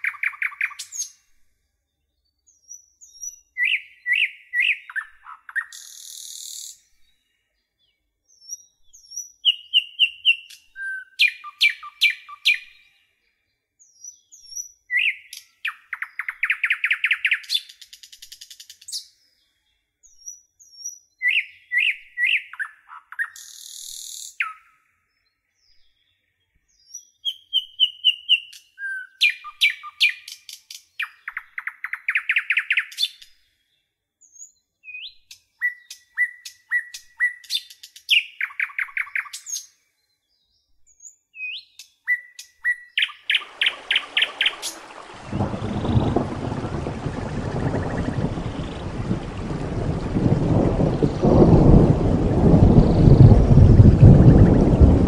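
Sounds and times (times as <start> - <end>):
songbird singing: 0.0 - 55.0.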